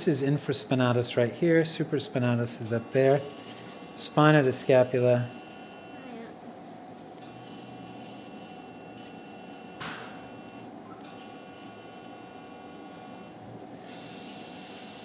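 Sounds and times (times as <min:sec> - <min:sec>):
faint equipment tones: 0:00.0 - 0:06.3
electrical hum: 0:00.0 - 0:15.0.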